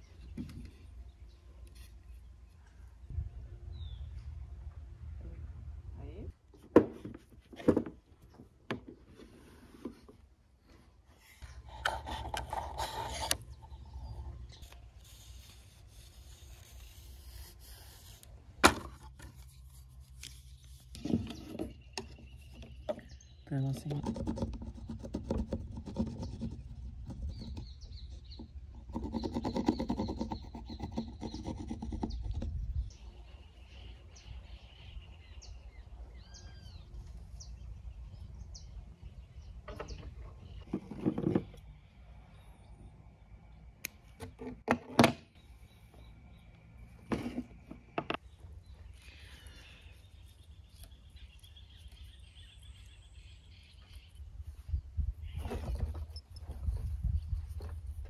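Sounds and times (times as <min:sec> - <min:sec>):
small birds chirping: 0:11.2 - 0:18.2, 0:19.4 - 0:44.5, 0:45.3 - 0:58.0
pencil scratching on wood: 0:24.0 - 0:27.7, 0:28.3 - 0:32.6.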